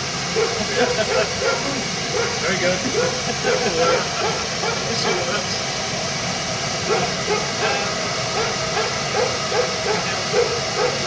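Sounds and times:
steam locomotive hissing: 0:00.0 - 0:11.0
dog barking: 0:00.4 - 0:04.9, 0:06.9 - 0:11.0.

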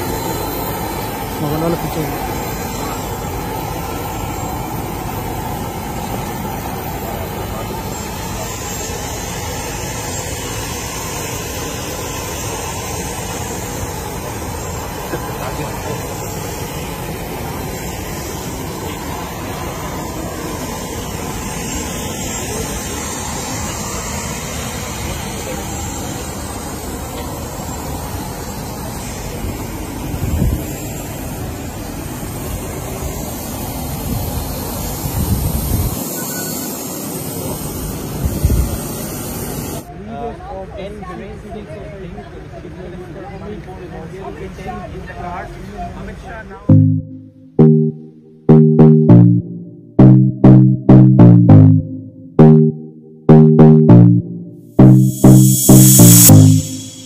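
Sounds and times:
jet engine noise: 0:00.0 - 0:39.9.

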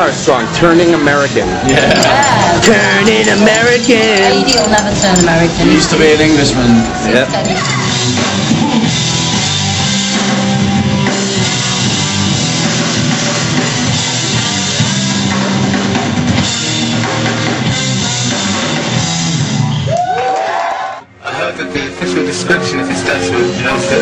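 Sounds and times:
held bass notes: 0:00.5 - 0:19.7
drum kit: 0:01.3 - 0:19.8.

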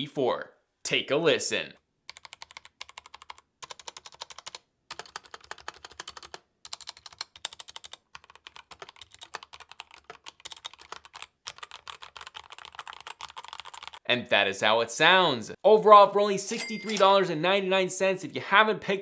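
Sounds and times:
mechanical keyboard typing: 0:02.1 - 0:14.0.

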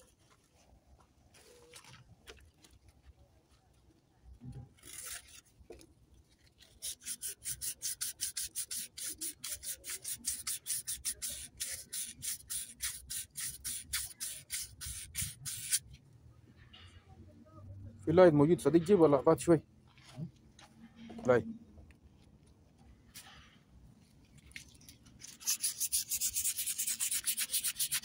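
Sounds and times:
scrubbing engine parts: 0:25.0 - 0:28.0.

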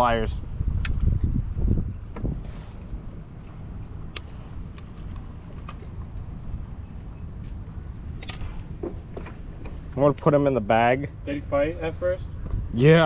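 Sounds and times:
wind rumble on microphone: 0:00.0 - 0:10.0, 0:12.0 - 0:13.0.

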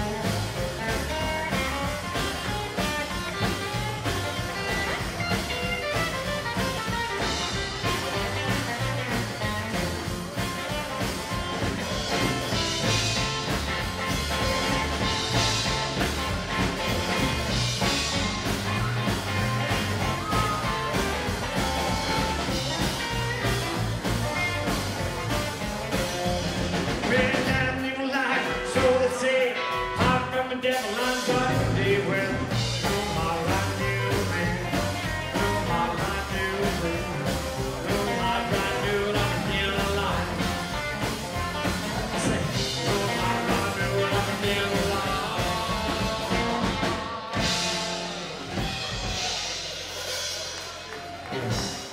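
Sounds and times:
upright double bass: 0:00.0 - 0:27.8, 0:31.3 - 0:51.9
drum kit: 0:00.0 - 0:51.9
electric and acoustic guitars: 0:00.0 - 0:51.9
man singing lead vocal: 0:27.0 - 0:40.9, 0:42.0 - 0:47.9.

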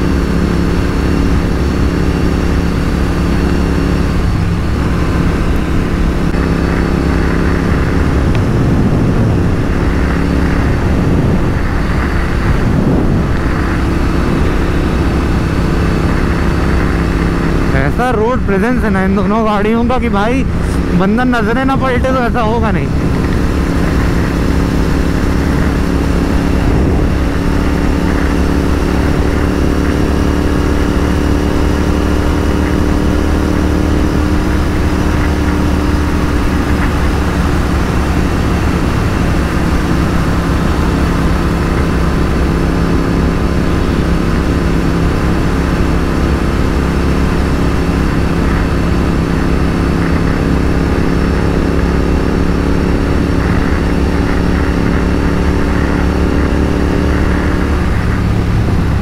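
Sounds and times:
motorcycle engines running steadily: 0:00.0 - 0:59.0
wind rushing on microphone: 0:00.0 - 0:59.0.

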